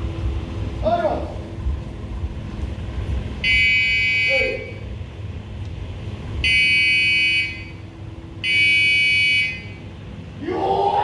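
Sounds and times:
electronic timer buzzer beeps: 3.4s - 4.4s, 6.4s - 7.8s, 8.4s - 9.8s
person shouting: 10.4s - 11.0s.

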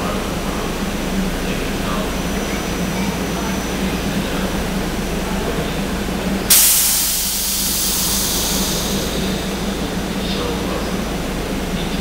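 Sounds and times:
electric train humming: 0.0s - 12.0s
air brakes hissing: 6.5s - 10.7s.

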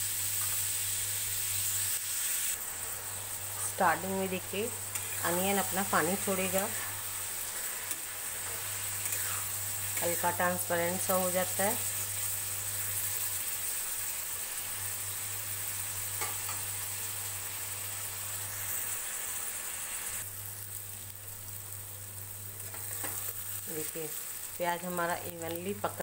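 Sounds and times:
onions sizzling in hot oil: 0.0s - 26.0s
steel spatula stirring: 4.9s - 5.4s.

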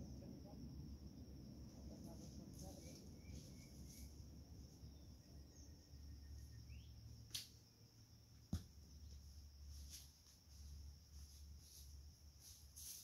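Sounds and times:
high insect drone: 0.0s - 13.0s
bird chirps: 2.7s - 4.1s, 4.8s - 7.0s.

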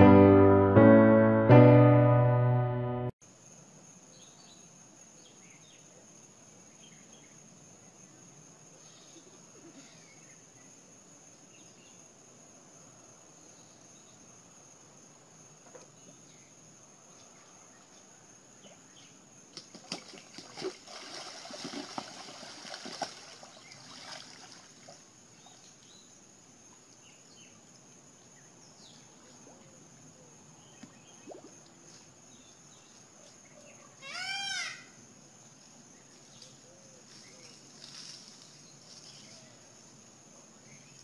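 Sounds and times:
high insect drone: 3.2s - 41.0s
water splashing and churning: 19.6s - 25.1s.

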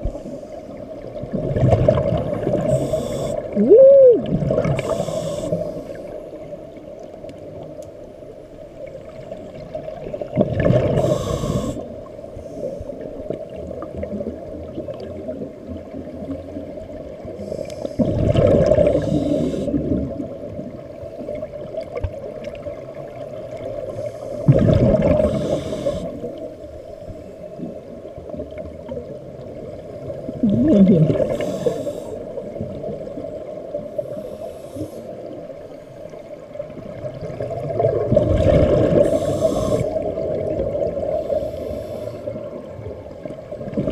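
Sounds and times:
exhaled bubbles from regulator: 1.2s - 5.6s, 17.6s - 20.4s, 24.4s - 26.5s, 30.2s - 32.8s, 36.9s - 42.6s.

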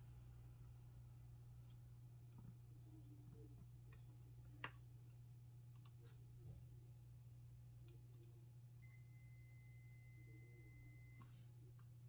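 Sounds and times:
multimeter continuity beep: 8.8s - 11.3s.

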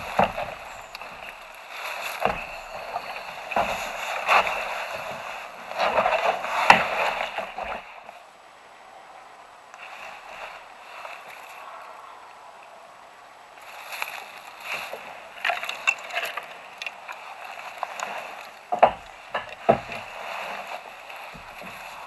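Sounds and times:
reed stems snapping: 0.0s - 8.1s, 13.6s - 22.0s
dry reeds rustling and crackling: 0.0s - 22.0s.

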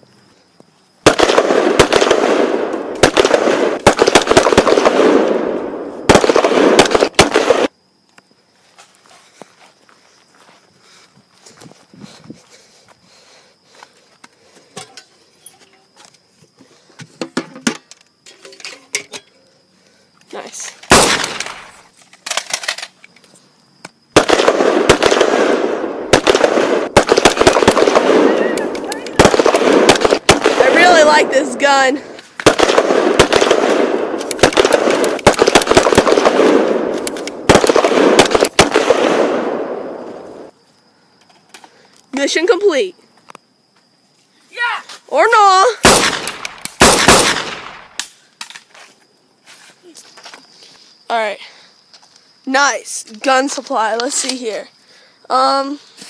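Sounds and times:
rapid automatic gunfire: 1.0s - 5.3s, 6.1s - 7.7s, 24.2s - 28.5s, 29.2s - 31.3s, 32.4s - 36.8s, 37.4s - 39.4s, 45.9s - 47.6s
footsteps on grass: 8.5s - 14.6s.

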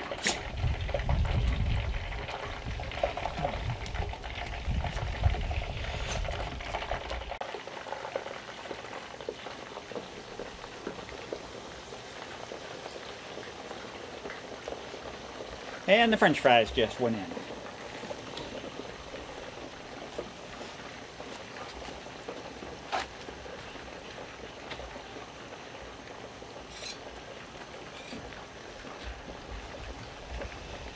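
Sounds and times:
chicken wings deep-frying in oil: 0.0s - 30.9s
wind rumbling on microphone: 0.4s - 7.4s.

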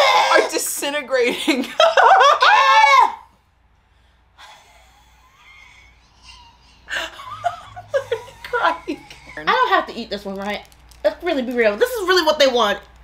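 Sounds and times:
faint breathing: 3.8s - 7.2s.

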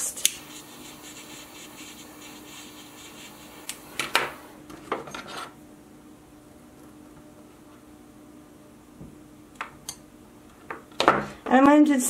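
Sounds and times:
lighter flame hissing: 0.0s - 4.6s.

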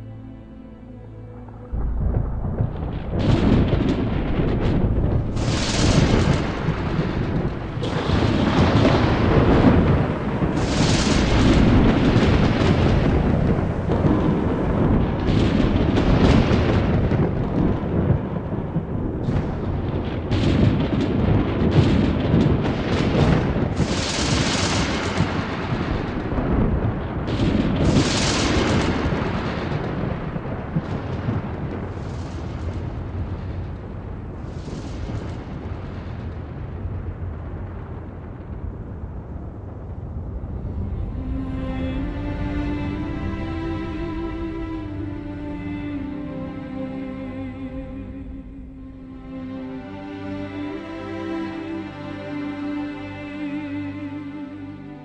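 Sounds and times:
heavy continuous rumbling: 0.0s - 55.0s
sharp blasts: 1.8s - 17.2s.

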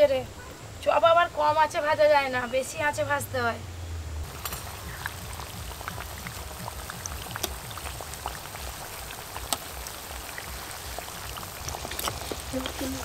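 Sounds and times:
food deep-frying in hot oil: 4.2s - 13.0s.

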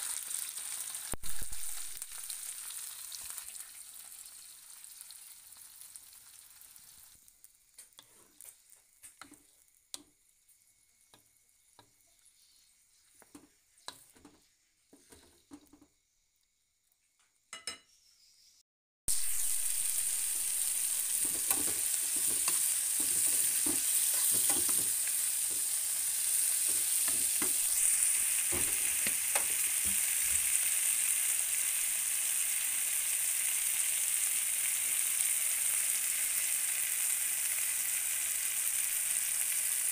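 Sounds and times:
food sizzling in oil: 0.0s - 15.9s, 19.1s - 39.9s.

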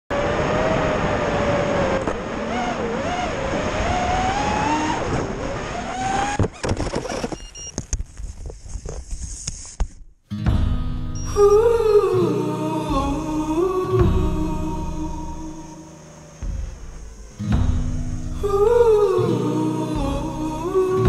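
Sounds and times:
gusty wind noise: 0.1s - 7.1s
drone motors whining: 0.2s - 7.7s, 12.9s - 19.4s.

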